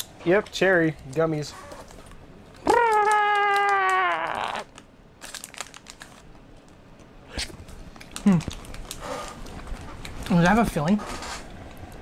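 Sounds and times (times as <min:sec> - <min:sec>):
candy wrapper crinkling: 0:02.7 - 0:06.3, 0:07.7 - 0:10.5.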